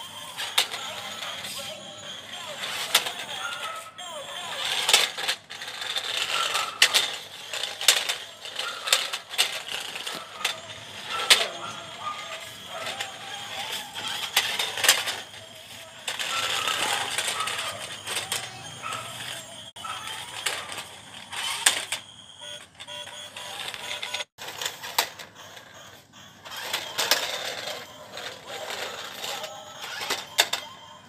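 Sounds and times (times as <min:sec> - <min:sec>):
electric gear motors whirring: 0:00.0 - 0:31.0
plastic wheels clattering on concrete: 0:00.2 - 0:30.8.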